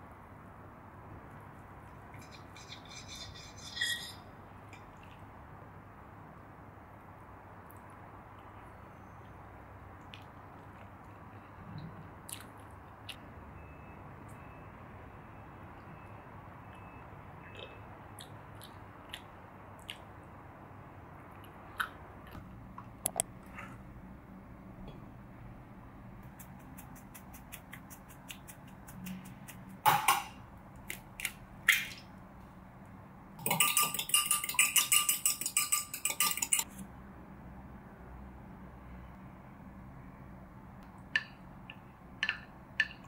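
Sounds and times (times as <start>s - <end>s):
egg whisked in glass jug: 33.4s - 36.6s.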